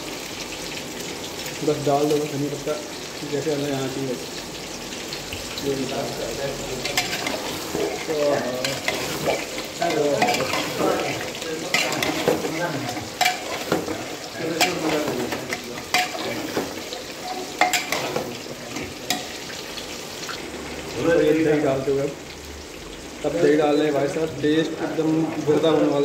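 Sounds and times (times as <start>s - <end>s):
masala sizzling: 0.0s - 26.0s
metal clinking against pot: 6.8s - 19.4s
spoon stirring in pot: 6.8s - 19.6s.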